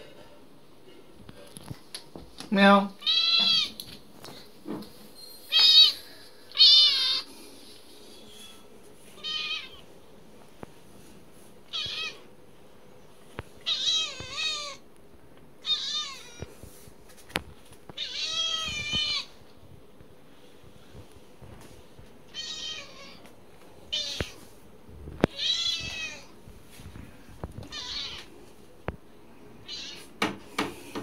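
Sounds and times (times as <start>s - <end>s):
cat meowing: 3.0s - 3.8s, 5.5s - 7.3s, 9.2s - 9.8s, 11.7s - 12.2s, 13.6s - 14.8s, 15.6s - 16.5s, 18.0s - 19.3s, 22.3s - 23.2s, 25.3s - 26.3s, 27.6s - 28.3s, 29.6s - 30.1s.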